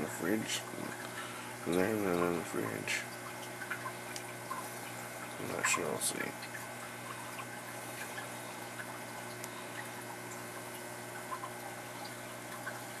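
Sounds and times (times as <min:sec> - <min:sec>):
aquarium water trickling: 0:00.0 - 0:13.0
water drips and pops: 0:03.1 - 0:13.0.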